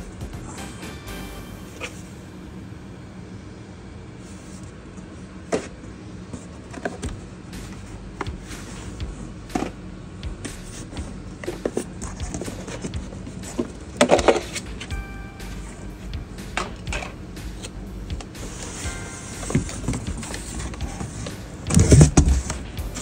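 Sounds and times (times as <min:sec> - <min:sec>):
cardboard boxes knocking: 0:21.7 - 0:22.6.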